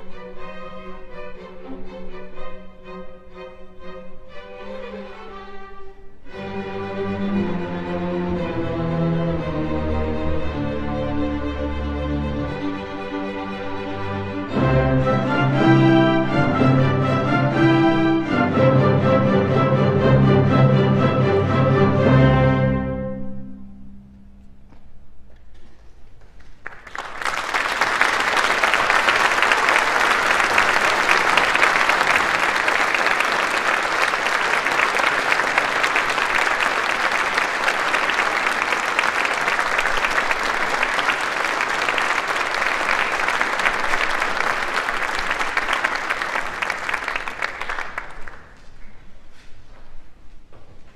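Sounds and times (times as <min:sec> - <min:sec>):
audience applauding: 0:26.4 - 0:49.1.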